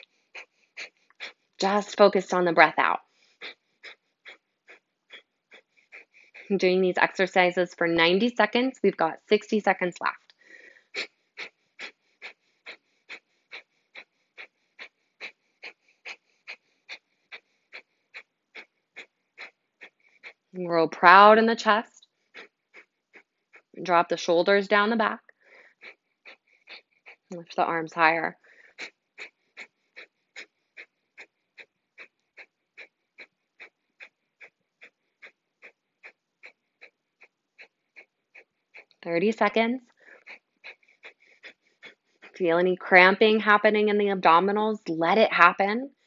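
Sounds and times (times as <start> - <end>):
woman's rapid nasal exhalations: 0.0 - 2.3, 2.9 - 7.6, 10.2 - 20.6, 21.9 - 23.8, 25.2 - 27.5, 28.3 - 39.0, 39.8 - 42.4.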